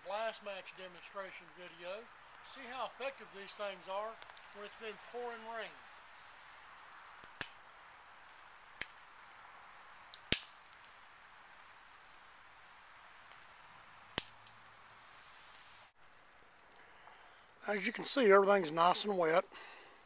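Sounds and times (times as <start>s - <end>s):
rain dripping in woods: 0.0s - 20.0s
twigs snapping: 4.1s - 4.7s, 7.2s - 7.6s, 10.1s - 10.9s, 13.2s - 14.7s.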